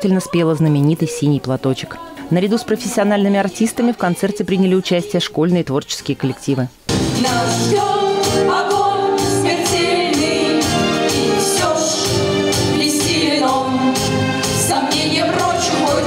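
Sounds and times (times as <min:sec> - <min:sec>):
instrumental music with steady beat: 0:06.9 - 0:16.0
children singing into microphones: 0:07.2 - 0:16.0.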